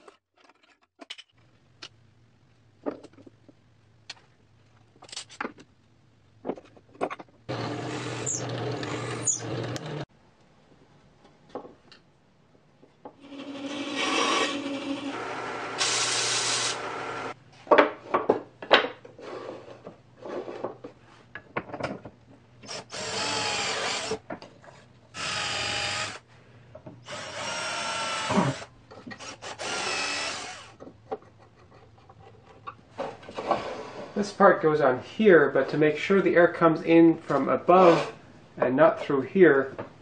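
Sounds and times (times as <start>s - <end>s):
power drill running: 7.5s - 10.0s, 13.2s - 17.4s, 22.7s - 24.2s, 25.2s - 26.2s, 27.1s - 30.7s.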